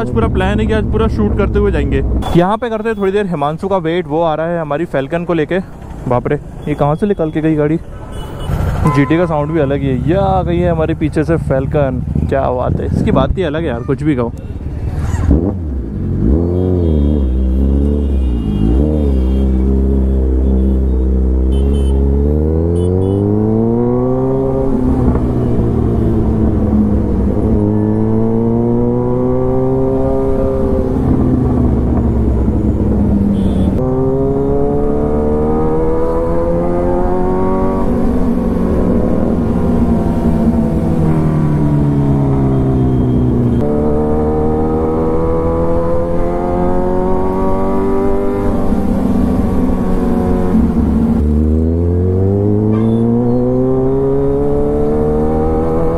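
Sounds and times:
motorcycle engine revving: 14.6 - 55.9.

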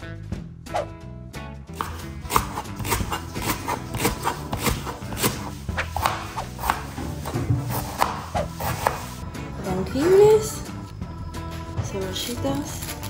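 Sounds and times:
background music: 0.0 - 13.0
knife slicing on plastic board: 1.8 - 9.2.

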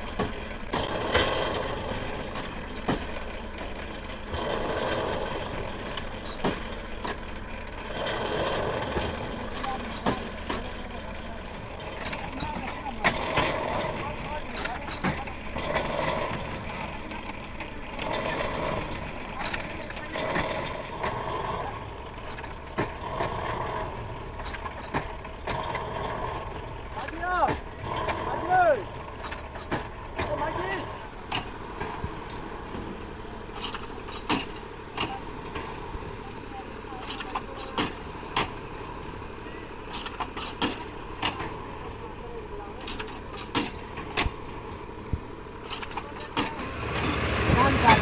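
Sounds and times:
machine engine drone: 0.0 - 48.0.

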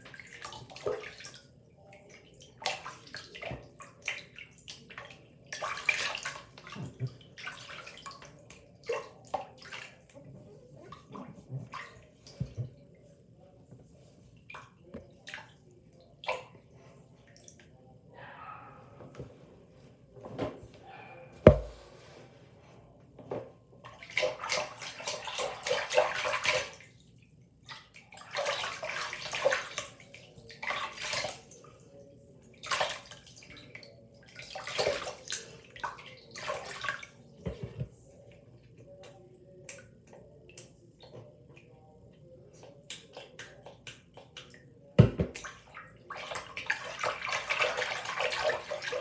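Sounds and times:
sharp knock: 21.5 - 21.8
hands splashing water in sink: 27.7 - 31.6, 42.8 - 49.0.

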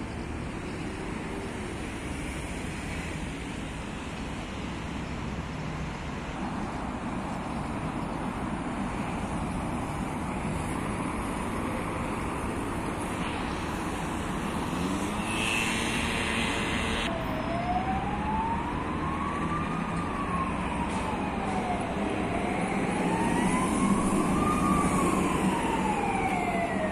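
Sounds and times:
street traffic noise: 0.0 - 26.9
distant siren wailing: 10.0 - 26.9.

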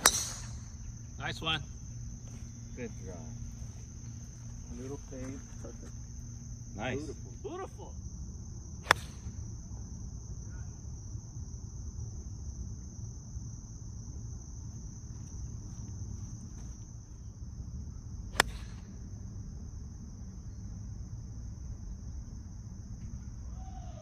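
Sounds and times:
golf club striking ball: 0.0 - 0.7, 18.4 - 18.9
high-pitched insect chorus: 0.0 - 24.0.

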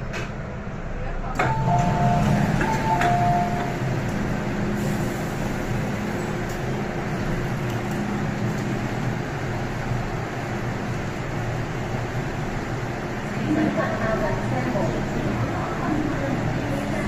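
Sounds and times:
train door-closing chime: 1.4 - 4.0.

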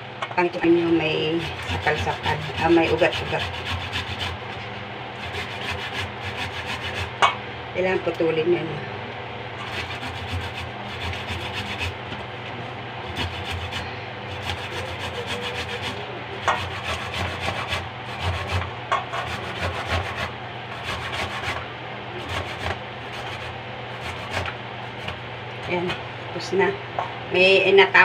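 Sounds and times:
root grated on metal grater: 0.6 - 4.6, 5.2 - 7.3, 9.6 - 12.2, 13.1 - 26.0.

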